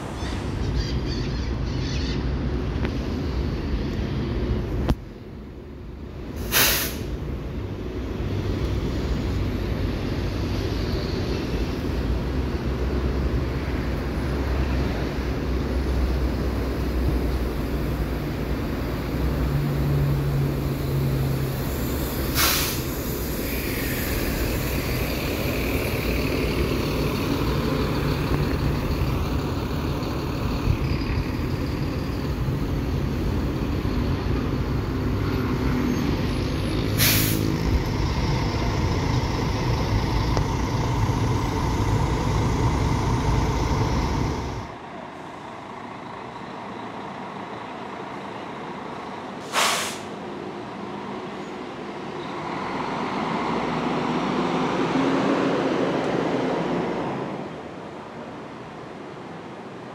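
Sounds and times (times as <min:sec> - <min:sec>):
bus diesel engines running: 0:00.0 - 0:59.9
air brake hiss: 0:06.4 - 0:07.2, 0:21.6 - 0:24.7, 0:36.9 - 0:37.6, 0:49.4 - 0:50.2.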